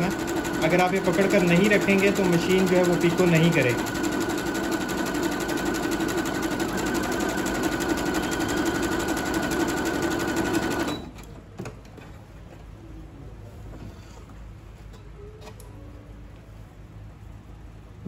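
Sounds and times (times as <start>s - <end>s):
sewing machine stitching: 0.0s - 11.2s.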